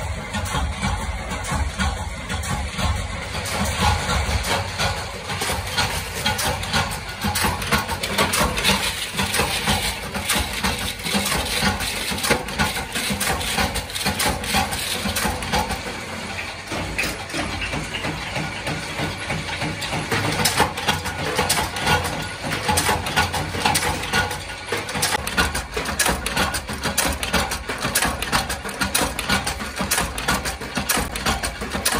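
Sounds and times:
low machine drone: 0:00.0 - 0:20.0
rapid metallic clatter: 0:00.0 - 0:31.9.

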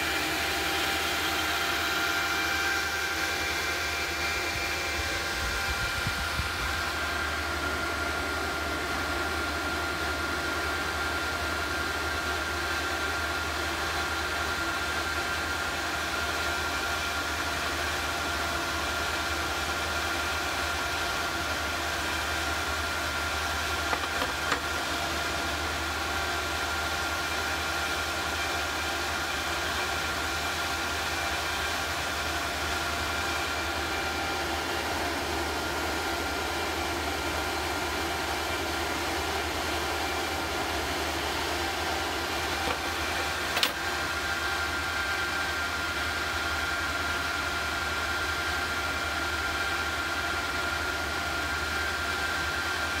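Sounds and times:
induction heater hiss and whine: 0:00.0 - 0:53.0
sharp click: 0:43.5 - 0:43.8.

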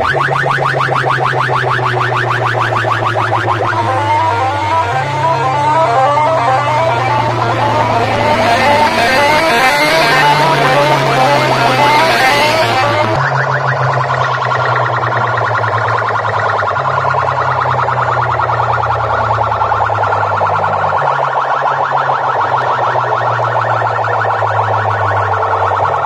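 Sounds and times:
electronic siren-like warbling: 0:00.0 - 0:26.0
deep sustained bass notes: 0:02.3 - 0:13.3.

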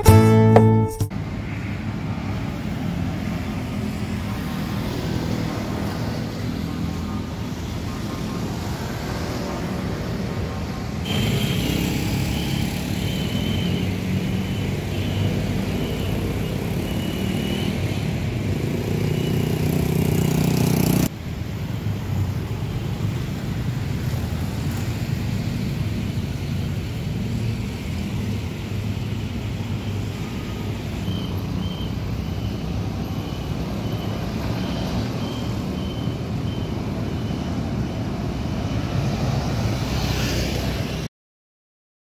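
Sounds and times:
faint broken high tone: 0:00.0 - 0:01.1
motorcycles and cars passing: 0:00.0 - 0:41.1.

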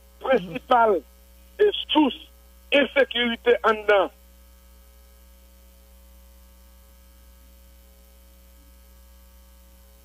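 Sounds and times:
electrical mains hum: 0:00.0 - 0:10.0
faint high buzzing tones: 0:00.0 - 0:10.0.

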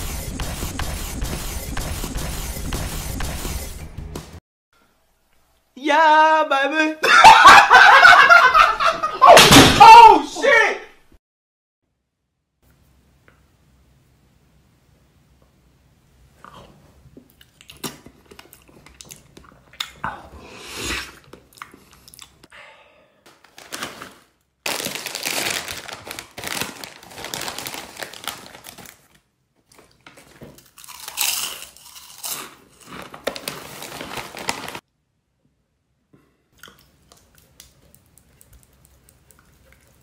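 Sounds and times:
wet mouth eating noises: 0:16.4 - 0:22.5, 0:36.6 - 0:40.0
plastic chip bag rustling: 0:23.3 - 0:34.8
crunching of chips: 0:23.4 - 0:34.8.

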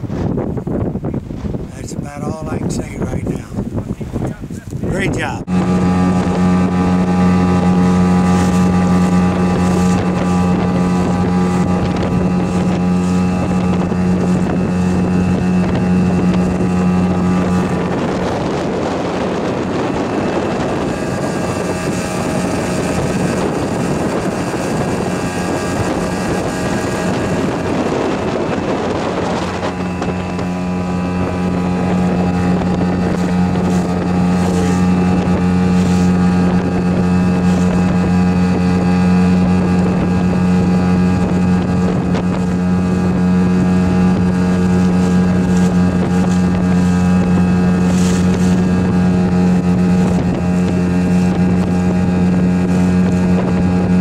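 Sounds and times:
boat motor droning: 0:00.0 - 0:54.0
wind and water rushing: 0:00.0 - 0:54.0.

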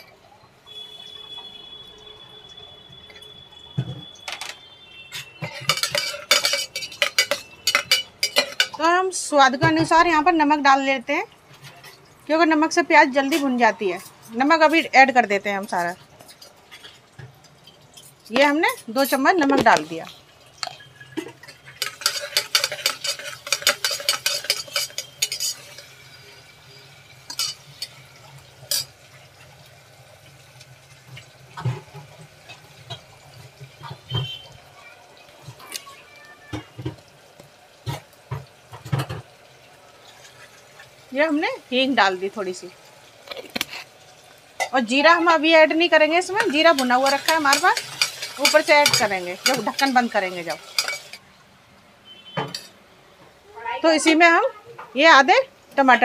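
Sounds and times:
faint sizzle: 0:00.0 - 0:56.0
spatula scraping metal pot: 0:05.1 - 0:08.8, 0:20.6 - 0:26.5, 0:46.2 - 0:51.2.

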